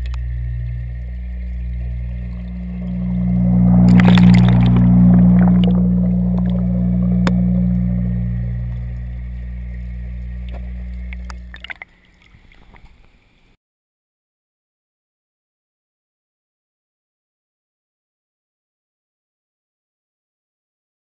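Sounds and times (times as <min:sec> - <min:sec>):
clicks: 0:00.0 - 0:00.3
air bubbling underwater: 0:00.0 - 0:12.7
pump humming underwater: 0:00.0 - 0:13.1.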